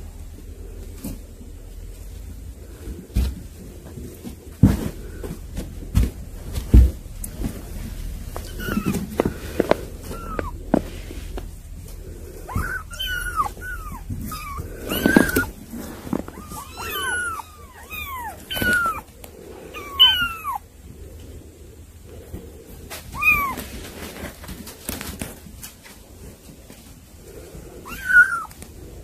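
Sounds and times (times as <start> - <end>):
kittens mewing: 4.6 - 20.7, 22.3 - 24.0, 27.7 - 28.7.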